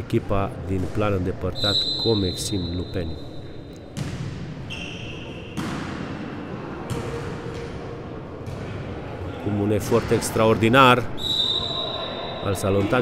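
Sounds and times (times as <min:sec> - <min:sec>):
ball bouncing on hall floor: 0:03.4 - 0:04.8, 0:05.5 - 0:06.2, 0:06.8 - 0:07.8.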